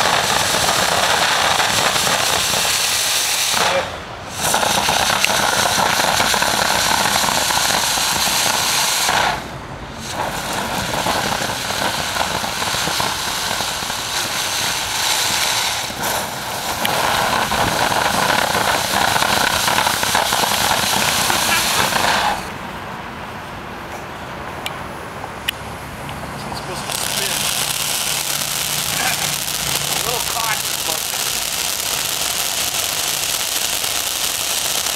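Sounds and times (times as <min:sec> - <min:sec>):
firework hissing and crackling: 0:00.0 - 0:22.7, 0:26.6 - 0:34.9.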